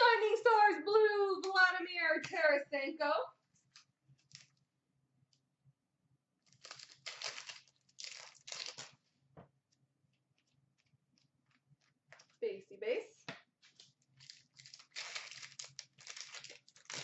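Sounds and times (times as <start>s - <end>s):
card pack wrapper crinkling and tearing: 3.7s - 4.6s, 6.4s - 9.0s, 13.6s - 17.0s.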